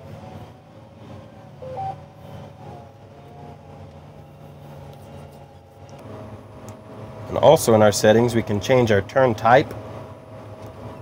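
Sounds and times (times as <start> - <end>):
tractor engine hum: 0.0 - 11.0
two-note electronic beep: 1.6 - 2.0.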